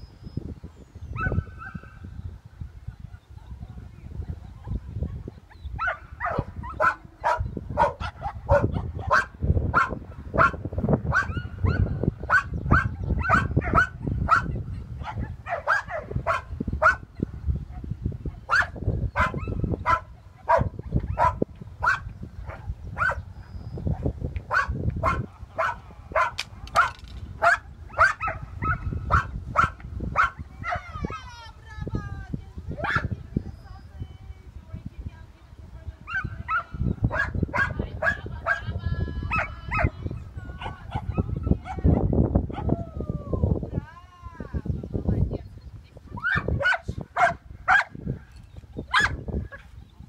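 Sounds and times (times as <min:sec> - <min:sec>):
dog barking: 0:05.8 - 0:17.0, 0:17.8 - 0:23.2, 0:24.5 - 0:30.8, 0:32.8 - 0:33.1, 0:36.1 - 0:38.7, 0:40.6 - 0:42.6, 0:46.2 - 0:48.0, 0:48.9 - 0:49.7.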